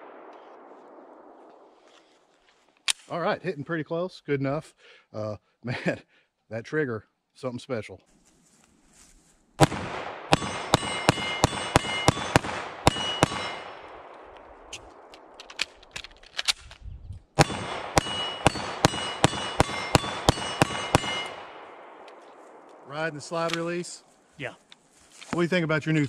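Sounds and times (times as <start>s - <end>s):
rapid pistol shots: 9.6s - 15.8s, 17.4s - 22.8s
steel targets ringing: 10.3s - 14.0s, 17.4s - 21.8s.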